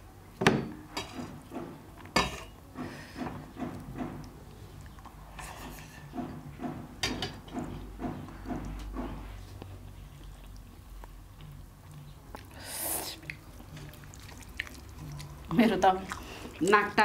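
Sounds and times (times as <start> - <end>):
wet chewing: 7.6 - 17.0.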